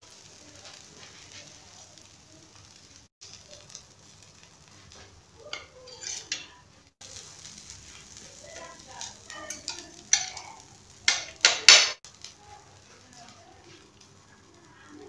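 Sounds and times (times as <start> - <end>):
faint kitchen hiss: 0.0 - 15.0
spatula and fork scraping a plate: 5.5 - 6.5.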